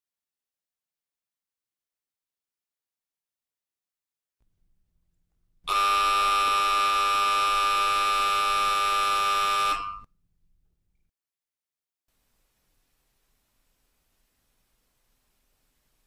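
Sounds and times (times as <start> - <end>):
electric buzzer harsh tone: 5.7 - 10.1.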